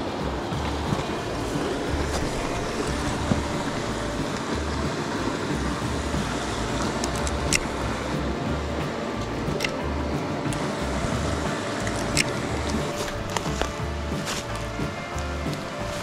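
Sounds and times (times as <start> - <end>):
low microphone rumbles: 0.0 - 16.0
stream rushing over stones: 0.0 - 16.0
sharp clicks: 5.6 - 8.0, 9.2 - 9.8, 11.8 - 13.8.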